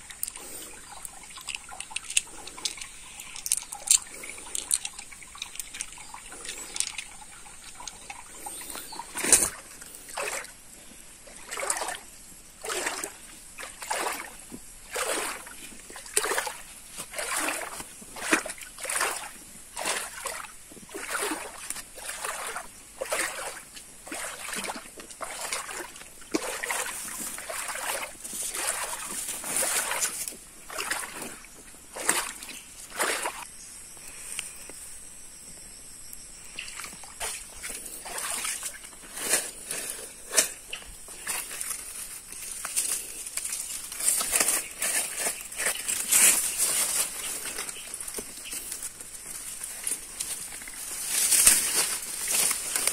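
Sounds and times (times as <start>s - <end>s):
water dripping and trickling: 0.0s - 10.5s, 12.6s - 33.5s
splashing footsteps in water: 0.0s - 10.6s, 11.4s - 12.0s, 12.6s - 33.5s, 36.6s - 52.9s
sharp splash: 12.6s - 33.4s, 36.8s - 38.8s.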